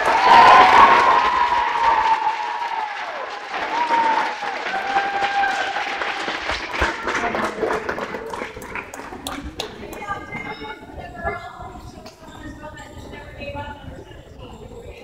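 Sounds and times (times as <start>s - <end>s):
children cheering: 0.0s - 8.7s
group clapping: 0.0s - 10.6s.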